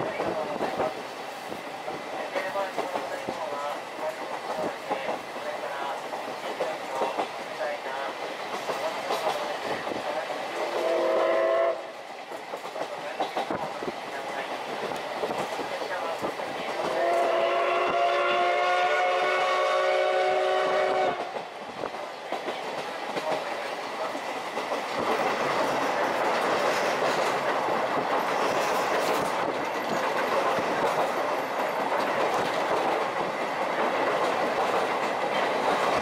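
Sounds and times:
train rumbling on rails: 0.0s - 36.0s
steam locomotive whistle: 10.7s - 11.9s, 16.9s - 21.3s.

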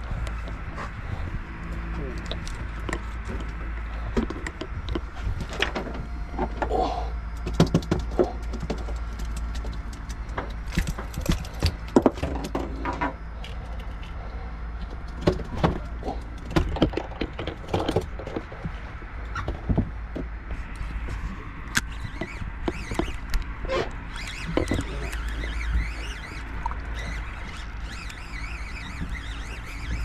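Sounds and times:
steady low hum: 0.0s - 30.0s
fishing gear clicks and rattles: 1.6s - 5.9s, 7.3s - 14.2s, 14.8s - 19.7s, 21.6s - 30.0s.

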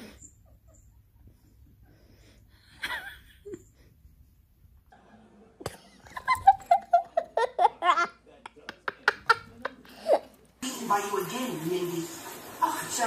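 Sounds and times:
person laughing: 2.8s - 3.6s.

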